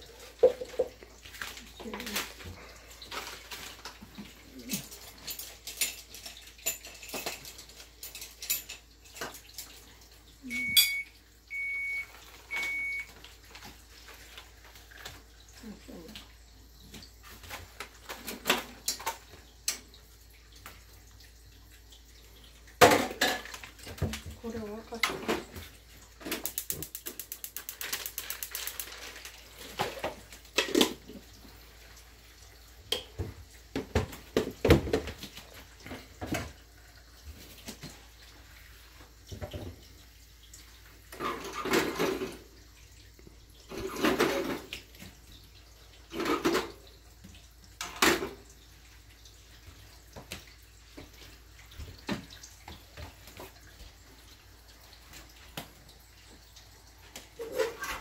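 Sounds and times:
kitchen tap running: 0:00.0 - 0:58.0
kitchen utensils knocking and clinking: 0:00.3 - 0:01.0, 0:04.8 - 0:09.8, 0:22.8 - 0:24.0.

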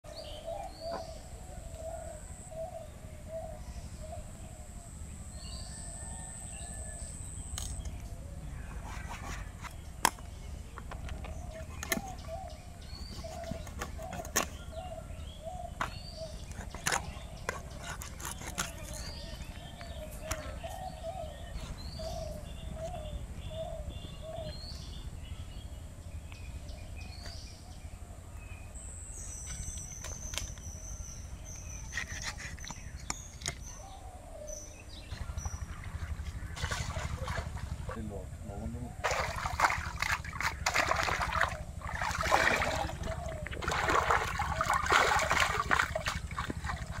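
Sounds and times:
bird chirping: 0:00.1 - 0:47.0
knife chopping fish: 0:15.8 - 0:19.1
water splashing: 0:35.5 - 0:38.0, 0:39.0 - 0:47.0.

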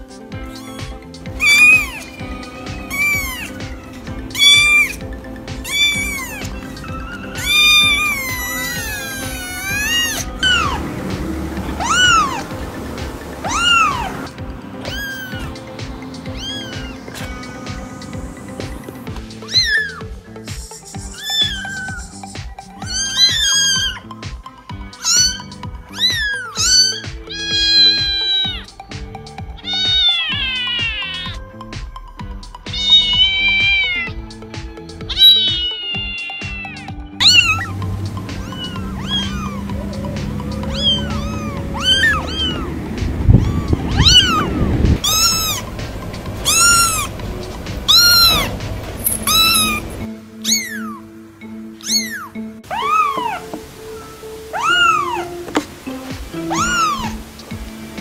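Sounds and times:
kittens meowing: 0:00.0 - 0:31.6, 0:32.2 - 0:51.1, 0:51.7 - 0:58.0
background music with steady beat: 0:00.0 - 0:58.0.

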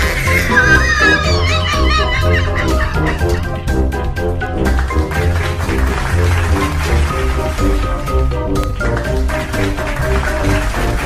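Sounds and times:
background music with steady beat: 0:00.0 - 0:11.0
high wavering warble: 0:00.3 - 0:03.5.

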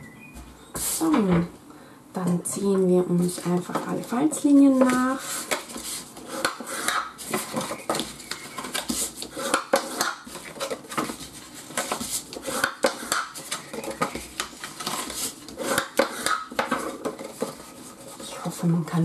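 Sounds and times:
paper rustling: 0:03.4 - 0:18.4
bone folder scraping paper: 0:04.7 - 0:18.5.

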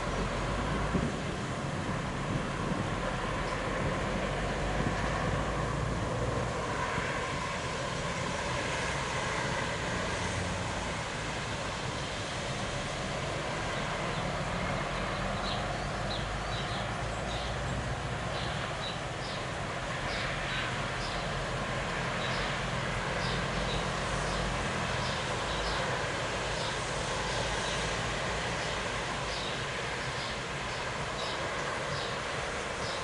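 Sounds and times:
thunderstorm rumbling: 0:00.1 - 0:08.6.

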